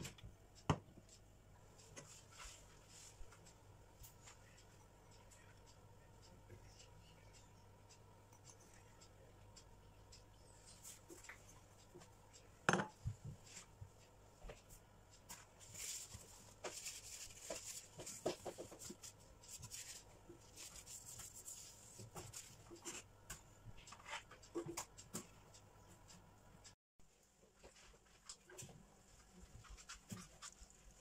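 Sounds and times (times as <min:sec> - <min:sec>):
light kitchen taps and rustles: 0:10.8 - 0:25.4
glass dish knocking on countertop: 0:12.7 - 0:12.9.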